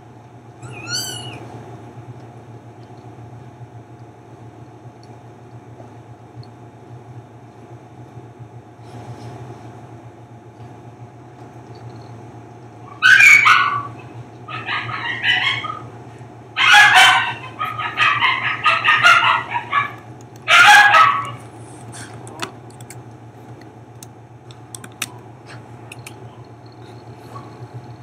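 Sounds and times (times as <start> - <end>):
puppies crying in squeals: 0.6 - 1.5, 12.9 - 16.0, 16.6 - 21.4.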